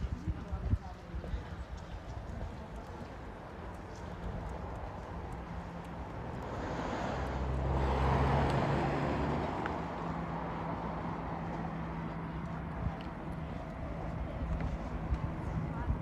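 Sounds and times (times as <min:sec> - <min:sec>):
low engine hum: 0:02.5 - 0:16.0
vehicle driving past: 0:06.2 - 0:12.1.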